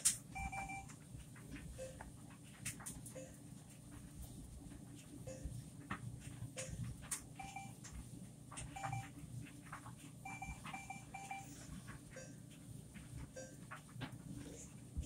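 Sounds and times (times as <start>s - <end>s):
control panel keys beeping: 0.4s - 0.9s, 7.4s - 7.8s, 8.6s - 9.1s, 10.3s - 11.6s.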